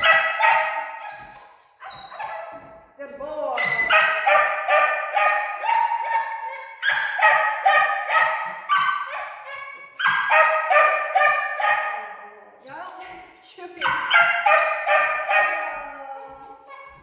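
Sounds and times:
dog whining and yipping: 0.0s - 2.7s, 5.2s - 11.4s, 16.2s - 17.0s.

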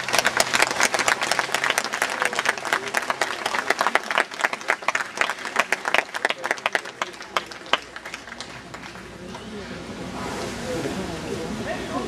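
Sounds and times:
crowd applauding: 0.0s - 9.5s.

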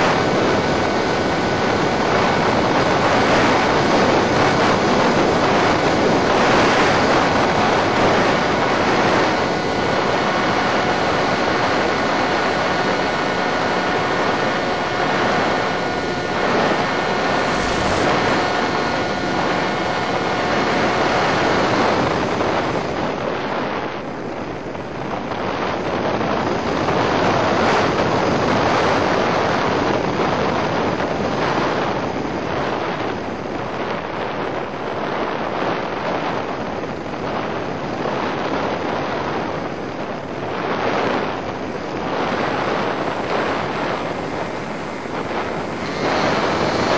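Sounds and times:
electric motor whine: 0.0s - 24.6s, 41.6s - 46.9s
wind over microphone: 0.0s - 46.9s.

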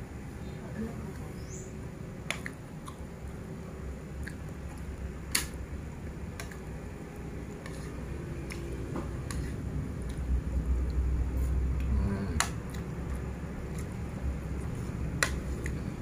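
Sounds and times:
person chewing food: 2.3s - 3.4s, 4.1s - 16.0s.

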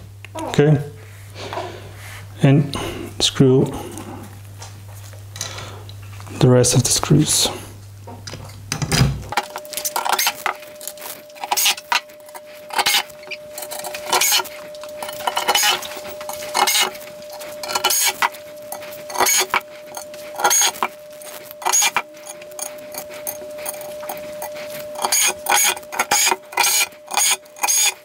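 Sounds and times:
metal screws clinking: 13.6s - 18.3s.

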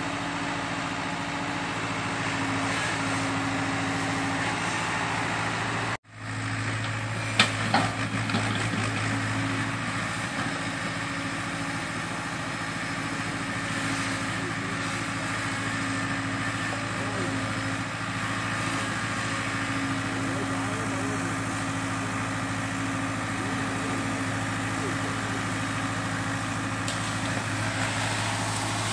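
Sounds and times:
excavator diesel engine running: 0.0s - 28.9s.

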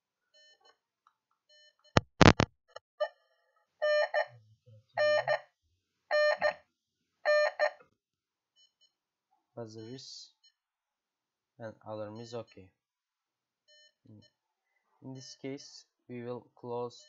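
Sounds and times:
alarm buzzer beeping: 3.8s - 4.3s, 5.0s - 5.4s, 6.1s - 6.6s, 7.3s - 7.7s.

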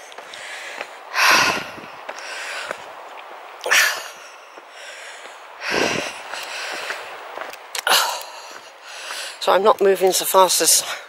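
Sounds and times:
person breathing hard: 0.2s - 3.0s, 3.6s - 9.4s.

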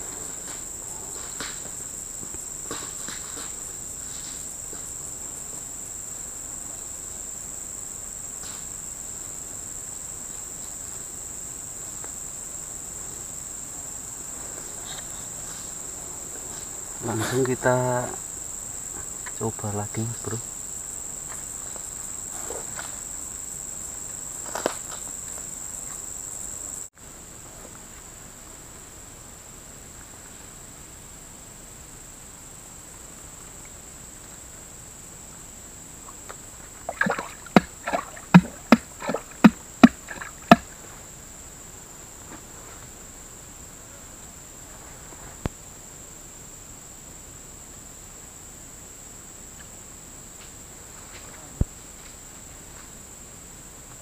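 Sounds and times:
high-pitched insect drone: 0.0s - 26.9s, 34.7s - 40.8s.

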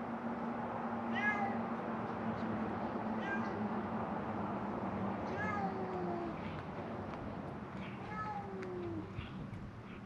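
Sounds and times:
cats meowing: 1.1s - 1.6s, 3.2s - 3.7s, 5.3s - 6.4s, 7.8s - 9.4s.

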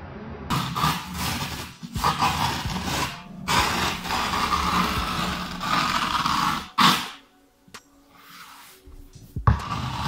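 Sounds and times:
palm rubbing grip tape: 0.5s - 7.2s.

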